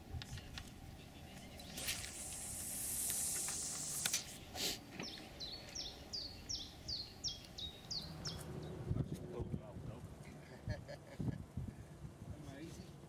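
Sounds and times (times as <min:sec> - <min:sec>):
fishing line hissing off reel: 0:01.6 - 0:04.8
sharp clicks: 0:01.9 - 0:04.3
songbird whistling: 0:05.0 - 0:08.5.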